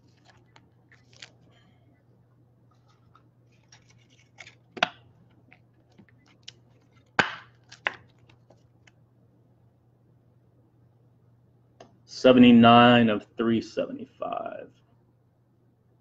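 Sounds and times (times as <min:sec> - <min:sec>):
soft plastic rustles: 0:00.0 - 0:01.9, 0:02.7 - 0:09.0.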